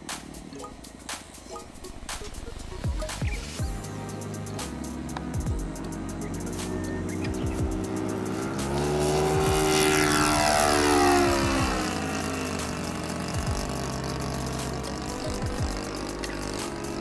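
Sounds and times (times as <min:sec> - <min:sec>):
model plane engine passing by: 0:05.7 - 0:17.0.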